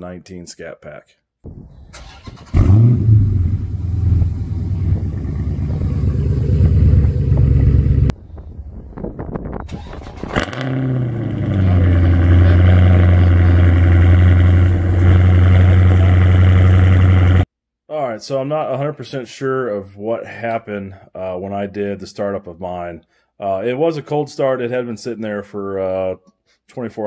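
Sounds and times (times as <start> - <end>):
car engine starting and idling: 1.8 - 8.1, 9.7 - 17.4.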